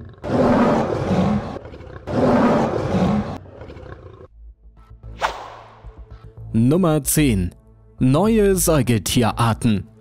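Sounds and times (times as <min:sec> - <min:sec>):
lion roaring: 0:00.0 - 0:04.3.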